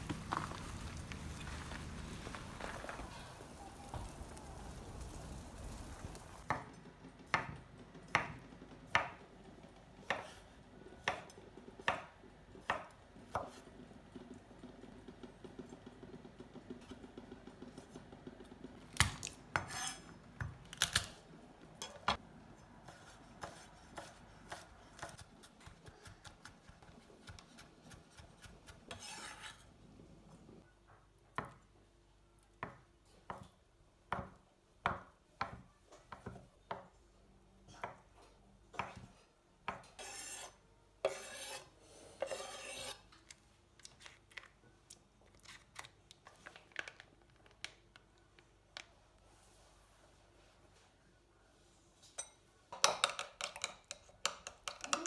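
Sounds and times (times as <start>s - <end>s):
knife scraping: 19.6s - 20.2s, 26.7s - 29.8s, 39.7s - 43.2s.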